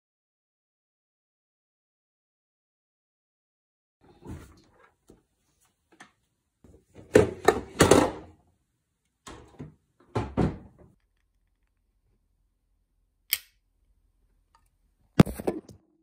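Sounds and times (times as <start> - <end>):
items knocking and rattling: 6.8 - 8.4
refrigerator door opening and shutting: 9.3 - 10.9.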